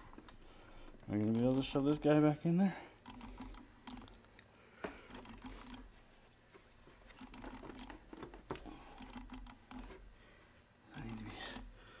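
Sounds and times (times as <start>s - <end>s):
hand rubbing and rustling: 2.9s - 11.8s.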